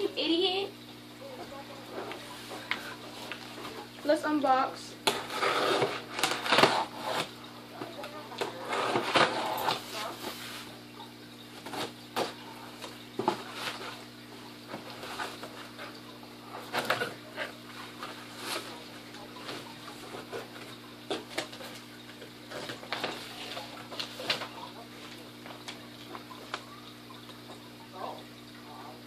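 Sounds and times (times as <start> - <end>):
faint steady hum: 0.0 - 29.0
cardboard and paper rustling: 11.6 - 14.1, 14.7 - 15.8, 16.6 - 21.9, 22.5 - 26.7.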